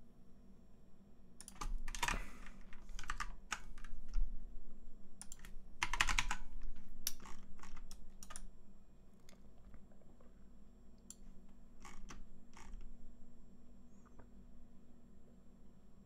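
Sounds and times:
typing on a keyboard: 1.4s - 4.2s, 5.2s - 8.5s.

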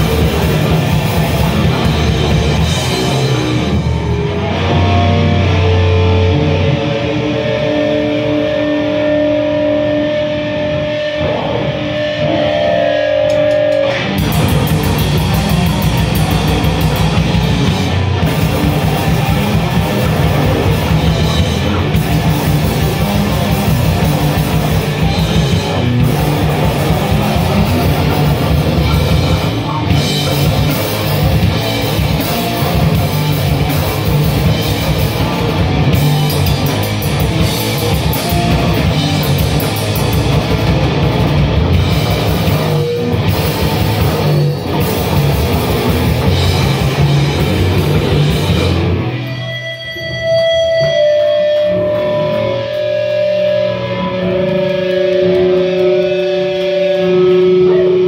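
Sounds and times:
distorted electric guitar: 0.0s - 58.0s
drum kit: 0.0s - 58.0s.

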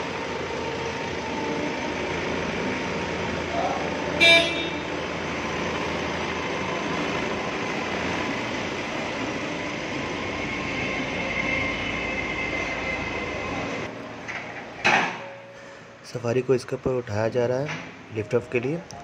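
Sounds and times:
diesel engine rumbling: 0.0s - 19.0s.

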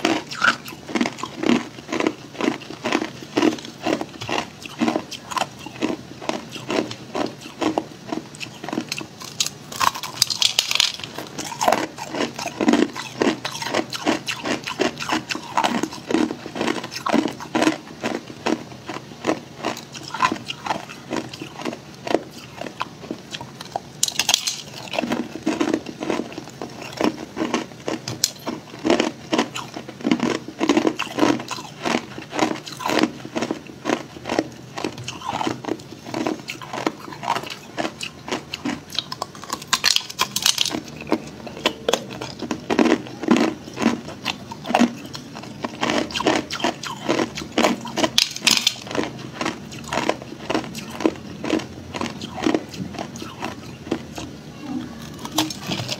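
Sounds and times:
ice being chewed: 0.0s - 54.3s.

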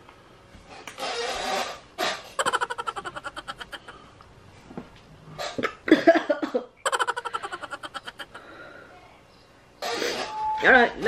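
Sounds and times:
woman laughing: 2.4s - 4.0s, 6.8s - 8.4s.

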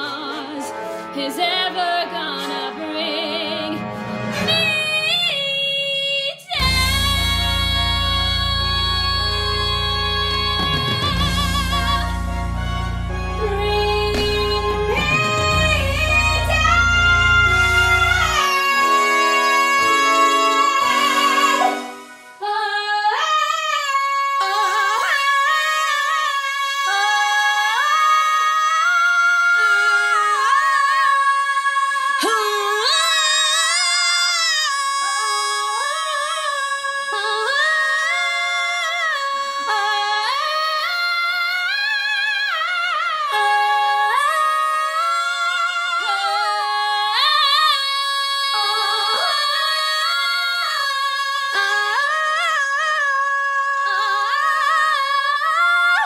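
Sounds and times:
women singing in harmony: 0.0s - 12.4s, 13.4s - 56.0s
instrumental chord passage: 6.6s - 22.5s.

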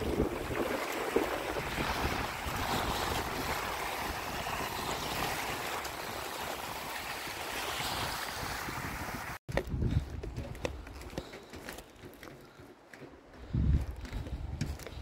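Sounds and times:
sea waves washing up beach: 0.0s - 9.4s.

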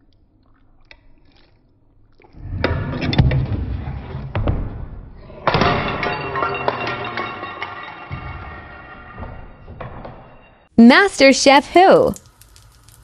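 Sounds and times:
baking dish smashing on tile floor: 5.4s - 10.6s.

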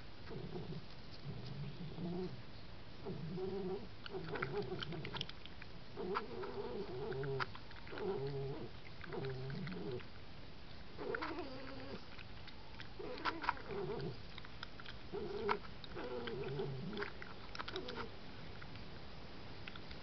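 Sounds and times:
clicks from feeding at bowls: 3.6s - 19.0s, 19.6s - 20.0s
fox calling: 11.0s - 12.1s, 13.0s - 14.2s.

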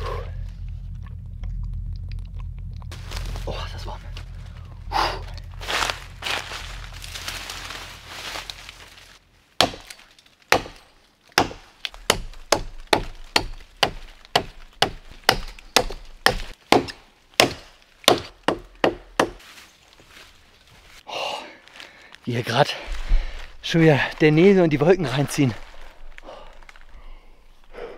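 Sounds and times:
hatchet chopping tree trunk: 9.6s - 19.4s.

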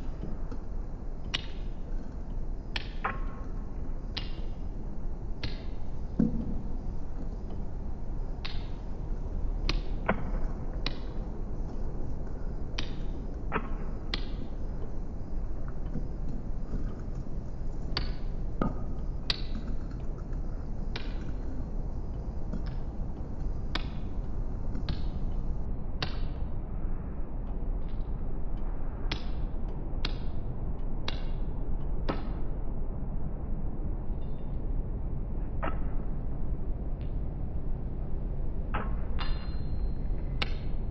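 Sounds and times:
low rumble and hiss: 0.0s - 40.9s
sharp snapping clicks: 4.1s - 4.6s, 5.4s - 5.8s, 9.6s - 11.2s.

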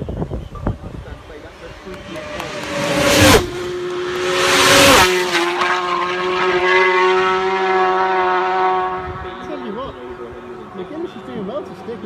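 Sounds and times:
steady engine note: 0.4s - 8.0s
racing motorcycles passing: 0.7s - 12.0s.

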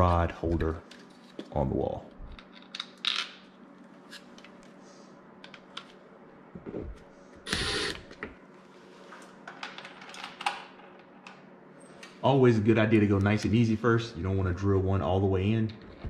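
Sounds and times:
cordless drill driving screw: 7.5s - 8.0s.

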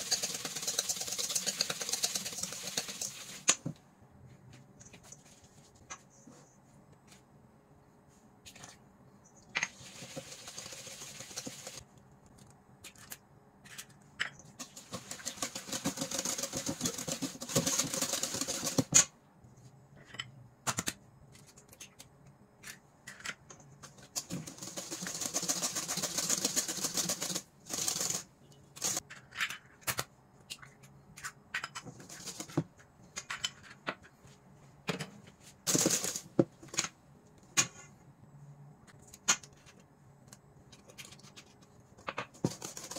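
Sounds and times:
whisk ticking against metal bowl: 0.0s - 3.4s, 9.8s - 11.8s.

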